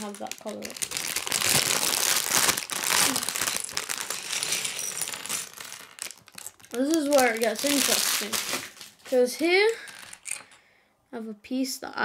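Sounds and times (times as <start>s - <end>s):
plastic bag crinkling: 0.0s - 10.6s
plastic bricks clattering onto table: 3.6s - 7.4s, 9.7s - 10.6s.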